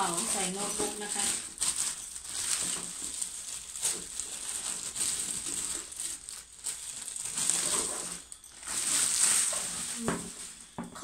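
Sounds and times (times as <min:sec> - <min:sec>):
plastic wrapping crinkling: 0:00.0 - 0:11.0.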